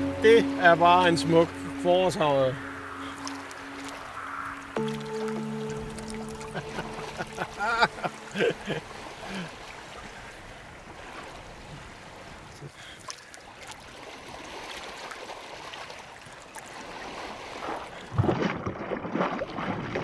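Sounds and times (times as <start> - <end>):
water lapping and trickling: 0.0 - 20.0
water drips and splashes: 1.4 - 20.0.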